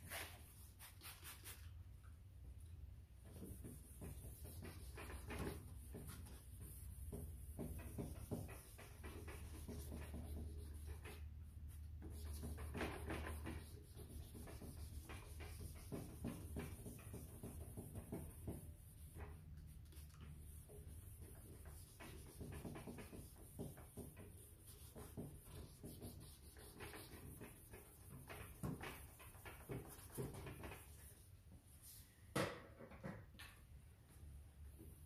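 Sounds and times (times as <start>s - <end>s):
wet sanding disc scrubbing plastic: 12.2s - 19.4s, 20.0s - 30.8s.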